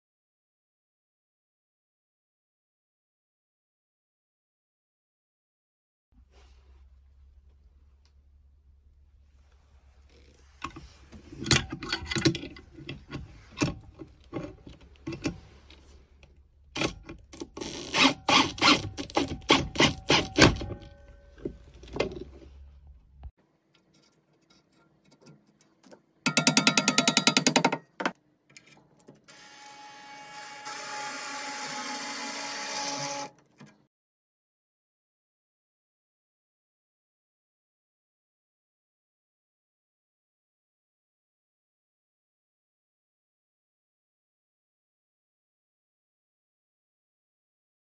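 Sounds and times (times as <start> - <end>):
metal clicks and knocks: 11.4 - 15.4, 23.8 - 29.2
power driver running: 16.8 - 20.9.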